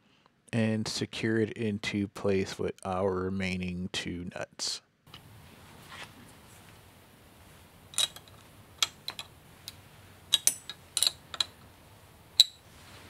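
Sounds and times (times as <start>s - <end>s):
small hardware clicking: 12.4s - 12.6s.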